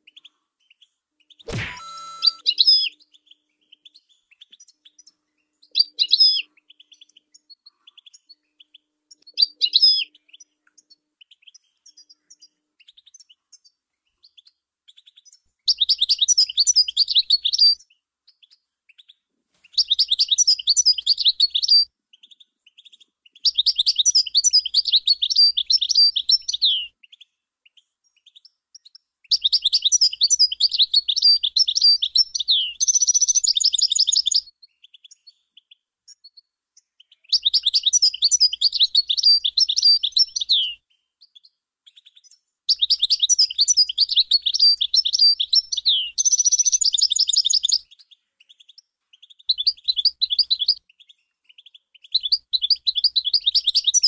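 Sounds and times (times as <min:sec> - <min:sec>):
goldfinch twittering song: 0:00.0 - 0:54.0
harsh buzzy bird trill: 0:01.4 - 0:03.0.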